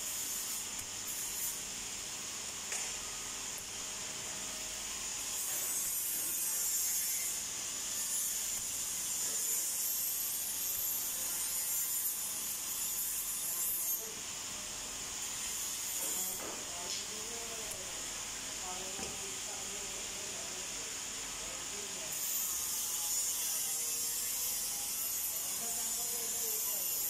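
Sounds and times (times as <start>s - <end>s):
welding arc hissing: 0.0s - 27.0s.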